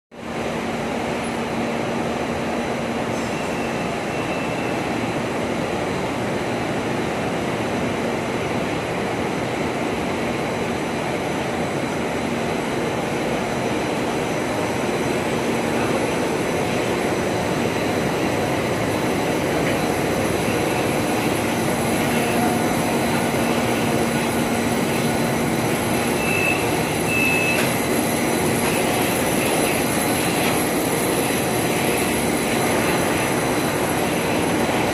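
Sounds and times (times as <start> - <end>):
film coating machine running: 14.7 - 34.9.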